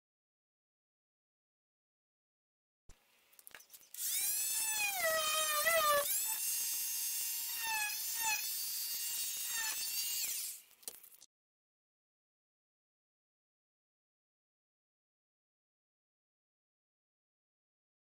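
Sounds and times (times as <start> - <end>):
electric grinder whining: 4.0 - 10.6.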